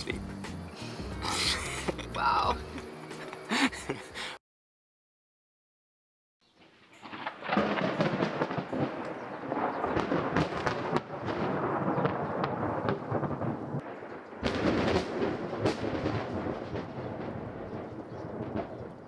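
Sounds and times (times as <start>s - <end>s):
falling rain: 6.6s - 19.0s
thunder rolling and crackling: 6.6s - 19.0s.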